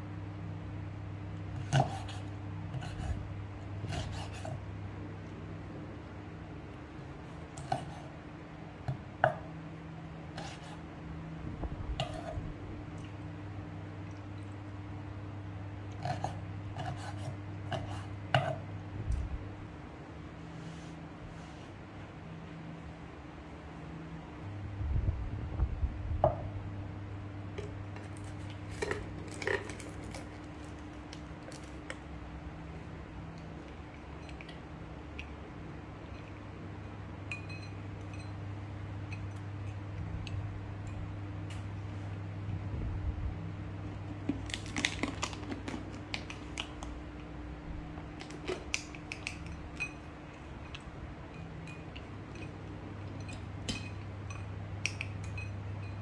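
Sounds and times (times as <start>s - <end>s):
steady low hum: 0.0s - 56.0s
low hum: 22.0s - 45.3s.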